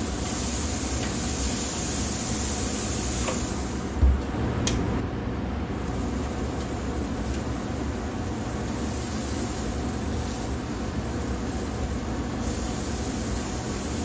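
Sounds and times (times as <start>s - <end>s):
meat sizzling on a grill: 5.9s - 14.0s.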